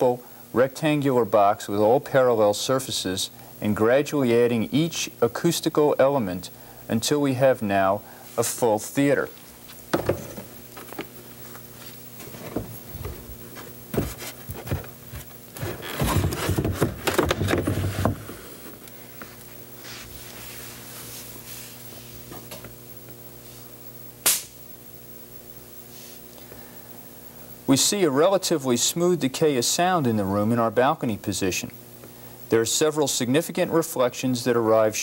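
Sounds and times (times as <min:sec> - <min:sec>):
steady low hum: 0:00.0 - 0:35.0
wood knocking and scraping on wood: 0:09.9 - 0:11.1, 0:12.2 - 0:18.4
sharp wooden crack: 0:24.2 - 0:24.6.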